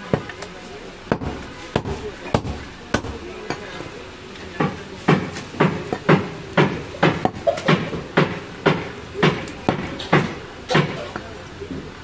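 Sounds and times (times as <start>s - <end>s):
cleaver chopping on wooden block: 1.1s - 3.2s, 4.6s - 11.0s.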